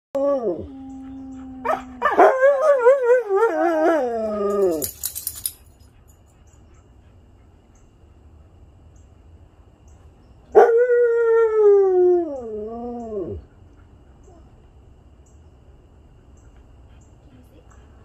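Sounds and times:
huskies howling: 0.2 - 4.9.

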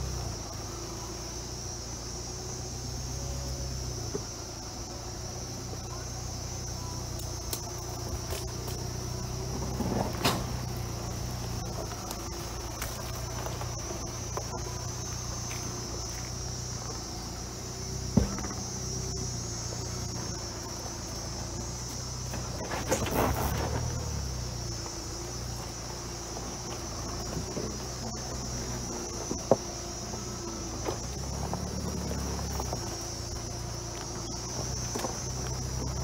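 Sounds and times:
diesel engine running low: 0.0 - 36.0
high insect buzz: 0.0 - 36.0
truck jolting knocks: 18.1 - 18.8.

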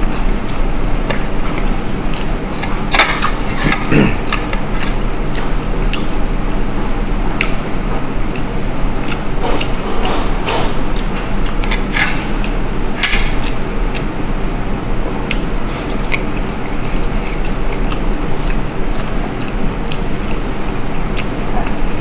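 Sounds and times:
chewing: 1.4 - 6.2, 8.2 - 10.3, 10.9 - 14.2, 15.2 - 22.0.

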